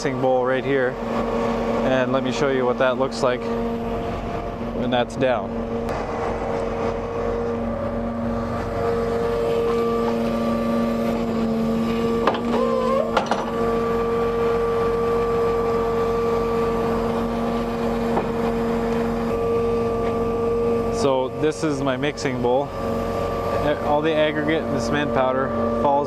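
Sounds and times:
mixer truck engine humming: 0:00.0 - 0:26.0
short wavering squeal: 0:05.4 - 0:26.0
metal clunks: 0:12.2 - 0:13.6.

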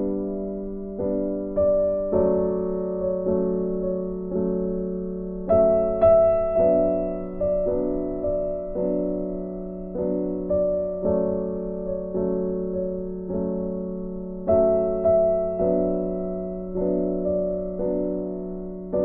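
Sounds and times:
slow piano chords: 0:00.0 - 0:19.0.

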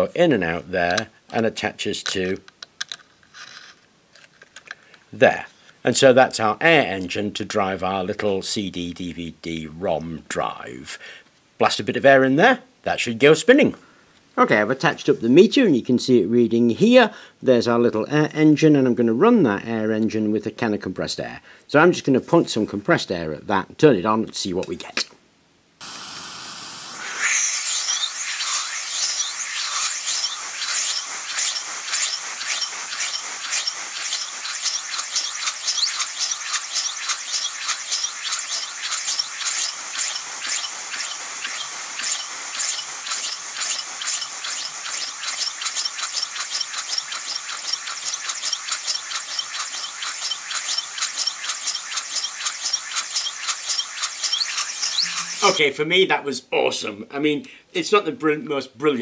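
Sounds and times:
compressed air hissing: 0:25.8 - 0:55.6.

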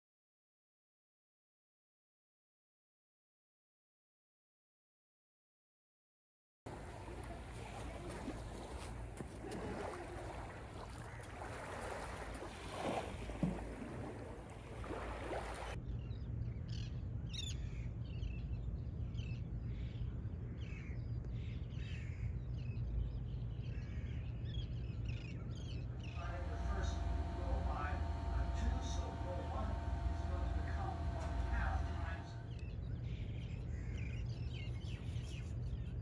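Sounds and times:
birds chirping: 0:06.7 - 0:15.8, 0:25.6 - 0:36.0
gentle surf washing: 0:06.7 - 0:15.8, 0:26.2 - 0:32.5
low steady rumble: 0:26.0 - 0:34.0.

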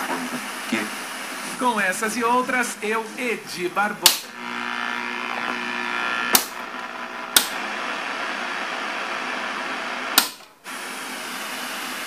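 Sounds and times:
speaker hiss: 0:00.0 - 0:04.4
stereo switch clicks: 0:04.0 - 0:04.3, 0:06.3 - 0:06.6, 0:07.3 - 0:07.6.

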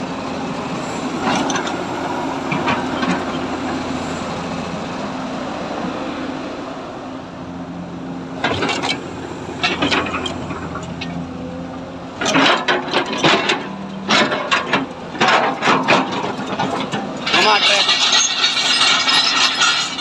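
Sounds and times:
excavator diesel engine humming: 0:00.0 - 0:20.0
metallic knocks and clatter: 0:09.6 - 0:11.2, 0:12.2 - 0:20.0.

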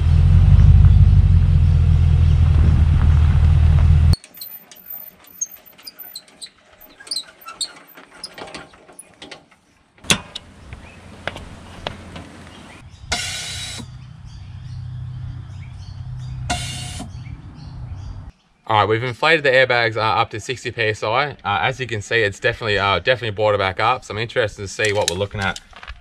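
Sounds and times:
air hiss bursts: 0:16.5 - 0:17.1.

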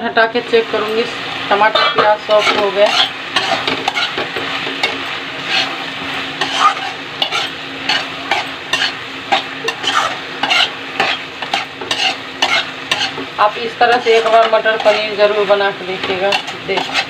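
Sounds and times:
vegetables sizzling in a pan: 0:00.0 - 0:17.0
utensil scraping a pan: 0:01.7 - 0:17.0.

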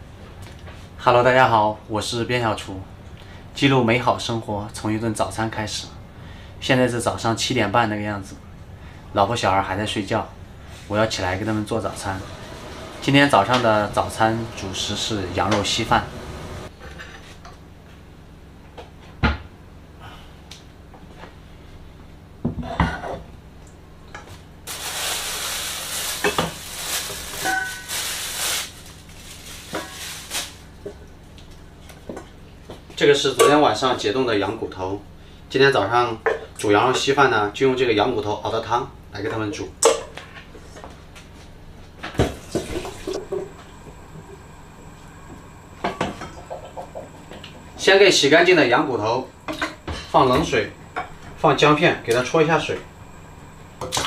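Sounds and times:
running tap water: 0:11.9 - 0:16.7, 0:42.4 - 0:43.3
pots and utensils clattering: 0:26.1 - 0:28.2.

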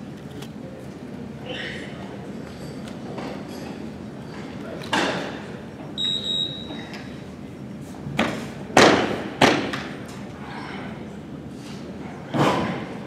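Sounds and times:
high electronic beep: 0:06.0 - 0:06.8.

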